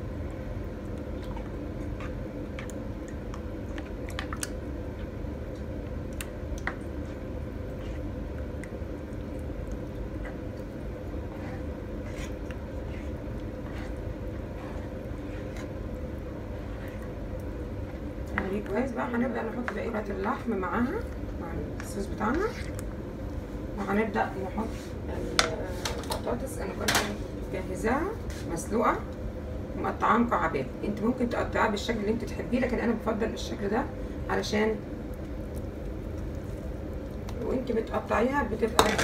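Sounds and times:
steady low hum: 0:00.0 - 0:39.0
sauce squelching while stirred: 0:00.6 - 0:23.2.

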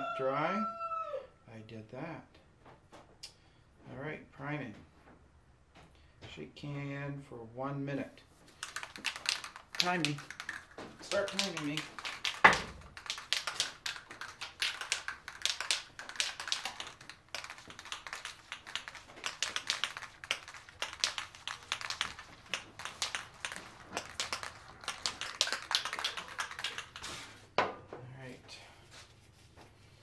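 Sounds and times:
spray can ball rattling: 0:08.5 - 0:27.5.

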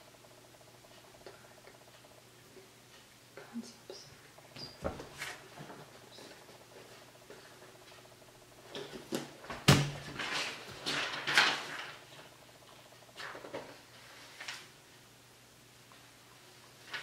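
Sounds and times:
book pages flipping: 0:04.8 - 0:07.0, 0:10.0 - 0:12.0, 0:13.2 - 0:14.7.

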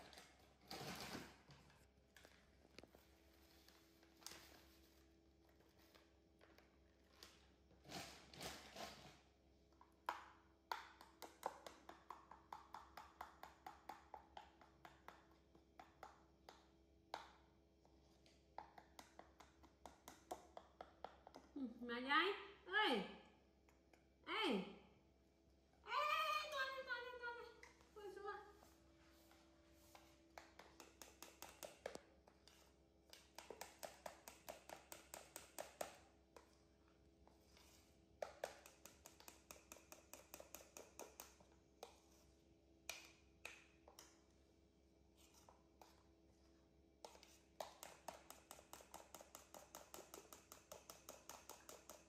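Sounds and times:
soft rustle: 0:27.8 - 0:30.3.

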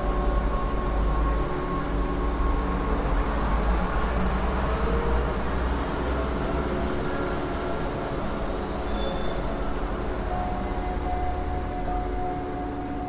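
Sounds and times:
faint steady tones: 0:09.4 - 0:13.0.

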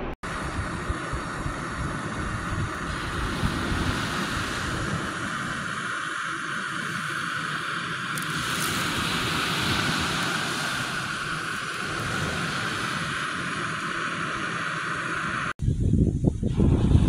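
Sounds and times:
surf rushing: 0:00.2 - 0:15.6
wind buffeting the microphone: 0:00.2 - 0:17.0.

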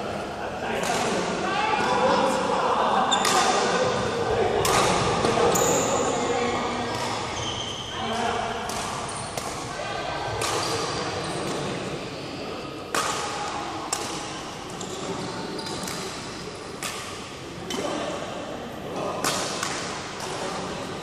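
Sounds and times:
ball kicks echoing in hall: 0:03.0 - 0:12.1.

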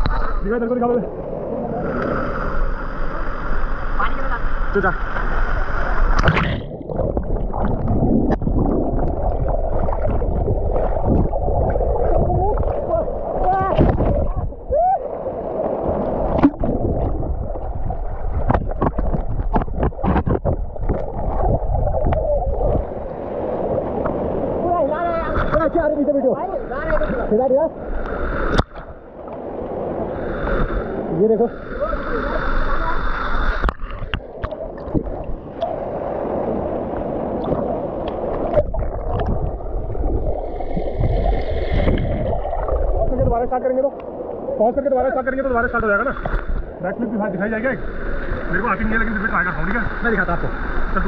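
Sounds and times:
muffled water sloshing and gurgling: 0:00.0 - 0:51.0
sharp knocks and splashes: 0:06.1 - 0:14.5, 0:15.8 - 0:22.8.

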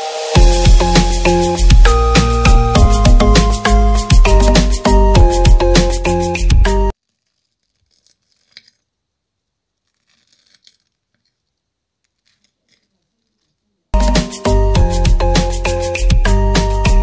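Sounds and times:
fork crunching crisp crust: 0:07.0 - 0:08.9, 0:09.7 - 0:13.7.

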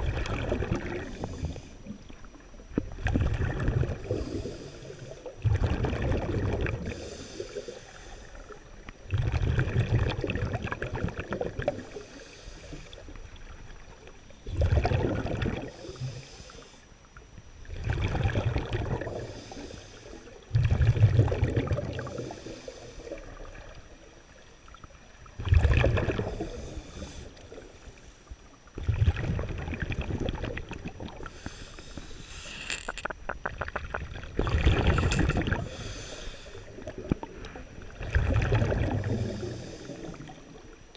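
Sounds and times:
exhaled air bubbling underwater: 0:00.0 - 0:40.9
scuba regulator breaths: 0:00.9 - 0:02.0, 0:03.9 - 0:05.4, 0:06.8 - 0:08.7, 0:11.7 - 0:13.2, 0:15.6 - 0:17.0, 0:19.1 - 0:20.4, 0:22.0 - 0:23.5, 0:26.1 - 0:28.4, 0:31.1 - 0:33.2, 0:34.4 - 0:37.9, 0:38.8 - 0:40.6.

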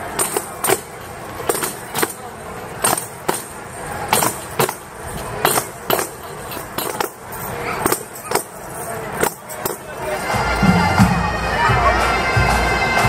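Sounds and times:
tambourines jingling: 0:00.0 - 0:11.0
background music: 0:09.6 - 0:13.0.

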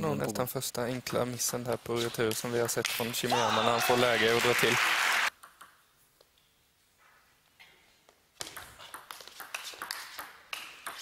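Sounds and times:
table tennis ball tapping: 0:08.4 - 0:11.0.

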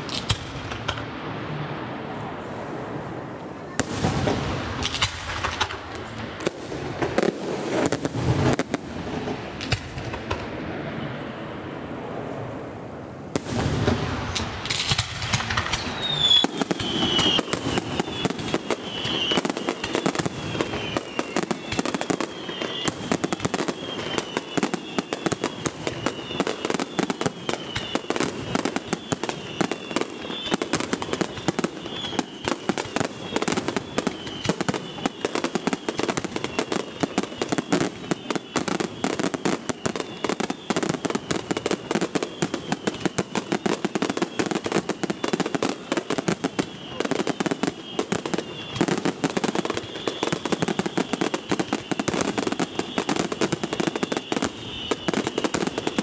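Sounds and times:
fireworks bangs and crackling: 0:00.0 - 0:56.0
high wavering whistle: 0:15.7 - 0:56.0.

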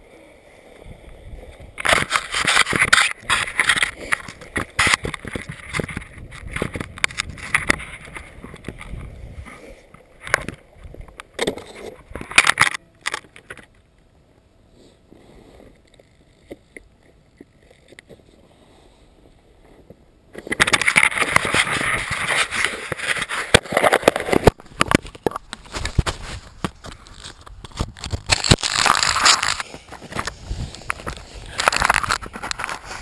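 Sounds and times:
wind rumbling on microphone: 0:00.0 - 0:12.6, 0:15.0 - 0:33.0
muffled handling noise: 0:19.6 - 0:33.0
fabric rubbing against microphone: 0:20.8 - 0:24.5, 0:28.9 - 0:33.0.

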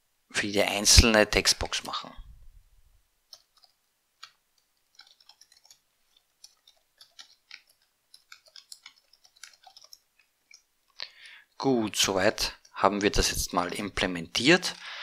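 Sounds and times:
computer keyboard typing: 0:03.3 - 0:10.7, 0:12.2 - 0:14.9.

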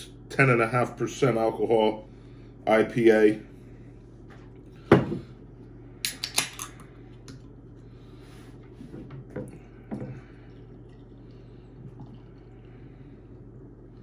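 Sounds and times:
beer pouring into glass: 0:09.9 - 0:12.8.

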